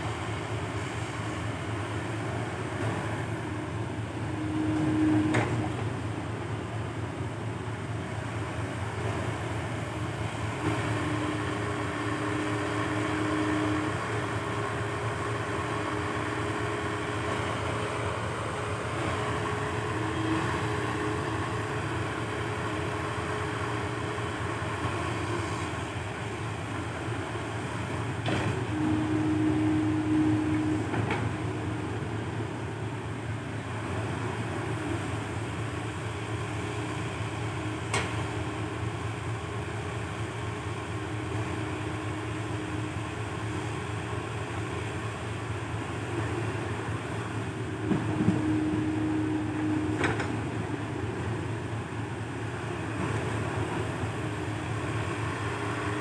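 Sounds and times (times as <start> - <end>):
excavator diesel engine under load: 0.0 - 56.0
hydraulic whine: 2.8 - 6.5, 25.1 - 33.4, 46.2 - 55.2.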